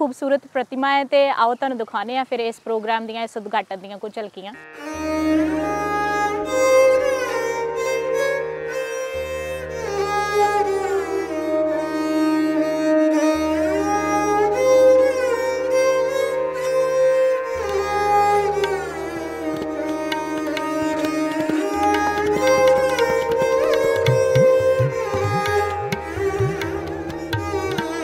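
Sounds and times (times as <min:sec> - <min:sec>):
harmonium melody: 0:04.4 - 0:28.0
tabla drumming: 0:17.6 - 0:28.0.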